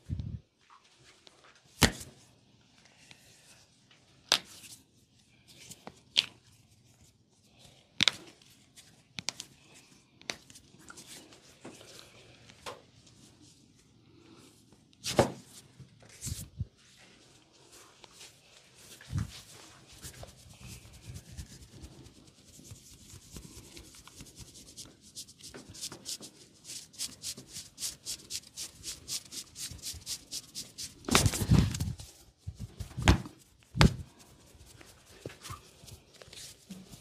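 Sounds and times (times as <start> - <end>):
hands rubbing bare skin: 16.1 - 37.0.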